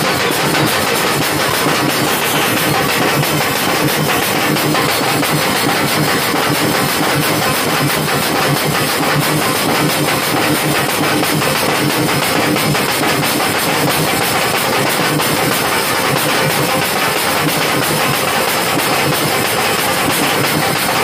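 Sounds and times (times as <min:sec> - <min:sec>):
fast loud drumming: 0:00.0 - 0:21.0.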